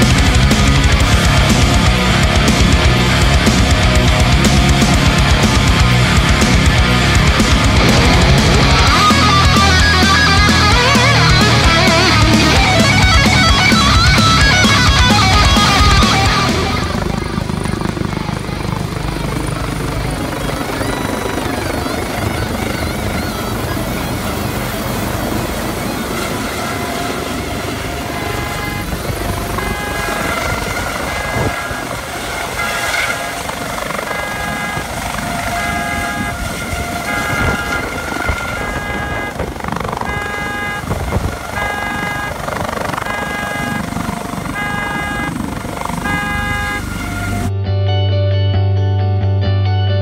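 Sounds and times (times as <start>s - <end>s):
helicopter rotor noise: 0.0s - 47.5s
car alarm beeping: 27.6s - 32.7s, 33.4s - 47.4s.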